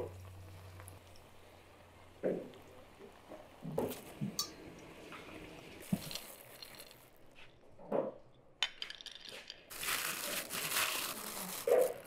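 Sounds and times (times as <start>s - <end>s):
plastic bag crinkling: 5.8s - 7.1s, 8.8s - 12.0s.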